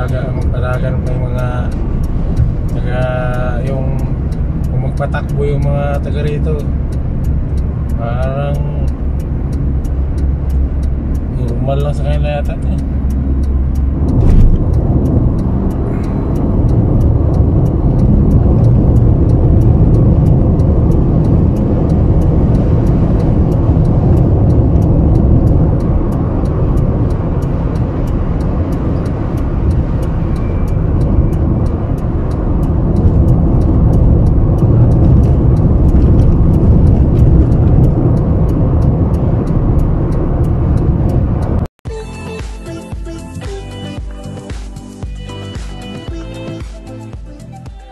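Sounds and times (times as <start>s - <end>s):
car interior road rumble: 0.0s - 41.7s.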